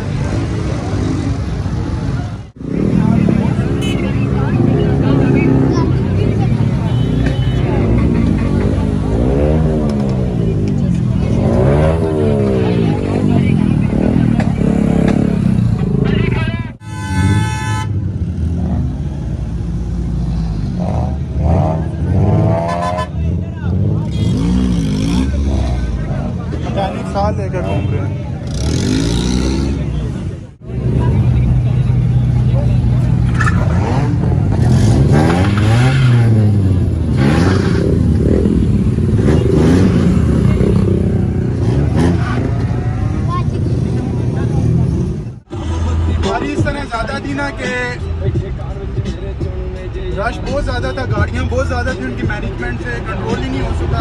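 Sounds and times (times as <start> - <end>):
car engine rumbling and revving: 0.0 - 54.0.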